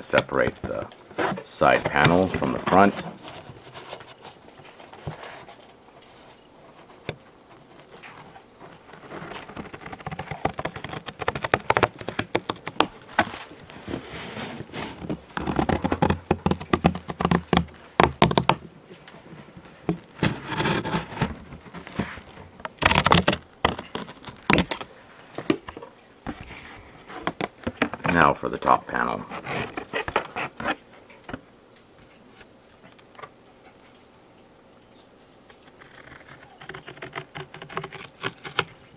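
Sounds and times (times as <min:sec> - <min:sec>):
handling scrapes and knocks: 0:00.0 - 0:31.4
scissors snipping cardboard: 0:09.0 - 0:12.9, 0:22.8 - 0:24.8, 0:35.8 - 0:38.8.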